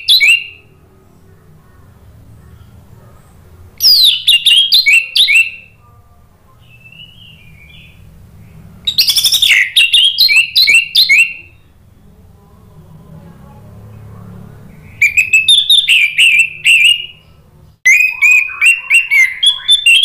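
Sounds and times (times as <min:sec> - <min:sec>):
bird whistling song: 0:00.0 - 0:00.8, 0:03.8 - 0:05.9, 0:06.6 - 0:08.1, 0:08.9 - 0:11.7, 0:14.8 - 0:20.0.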